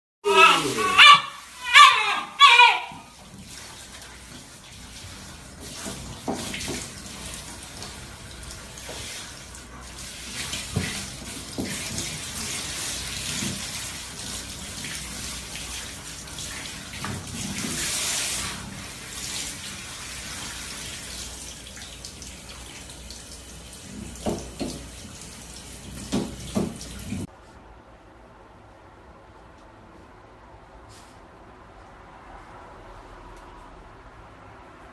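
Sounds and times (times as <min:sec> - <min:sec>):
knocks and splashes: 0:05.1 - 0:08.0, 0:10.2 - 0:15.5, 0:23.9 - 0:25.0, 0:25.9 - 0:27.3.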